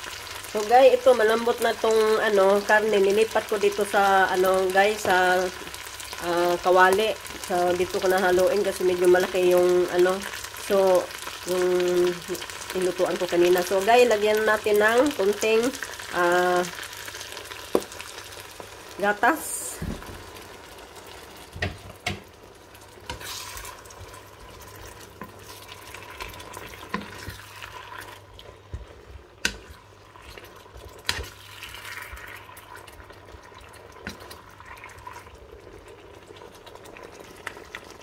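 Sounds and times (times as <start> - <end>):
sauce sizzling in a frying pan: 0.0 - 38.0
wooden spatula knocking on pan: 21.6 - 22.3.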